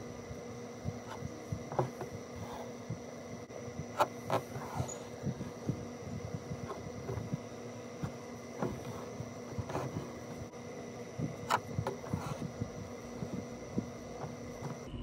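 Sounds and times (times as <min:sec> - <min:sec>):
faint steady hum: 0:00.0 - 0:15.0
needle and thread through fabric: 0:03.8 - 0:10.5, 0:11.1 - 0:14.9.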